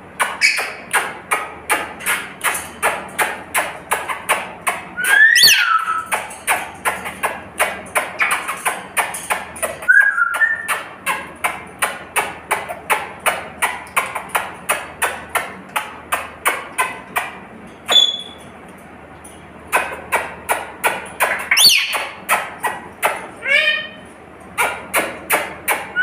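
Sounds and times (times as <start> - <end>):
high bird call: 5.0 - 6.1.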